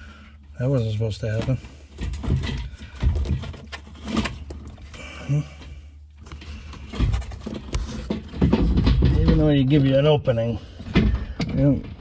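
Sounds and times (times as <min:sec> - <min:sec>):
plastic clicks knocks and scraping: 0:01.3 - 0:05.0, 0:06.2 - 0:09.7.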